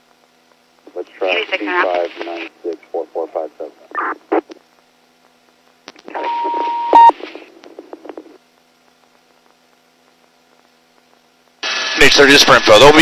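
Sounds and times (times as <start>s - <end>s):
radio static burst: 0.8s - 4.8s, 5.5s - 8.4s, 11.6s - 13.0s
steady beep tone: 6.2s - 7.2s.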